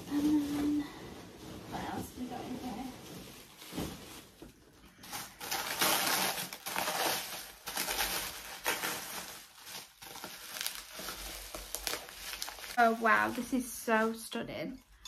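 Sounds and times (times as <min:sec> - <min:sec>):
packing wrap crinkling: 0:00.0 - 0:14.2.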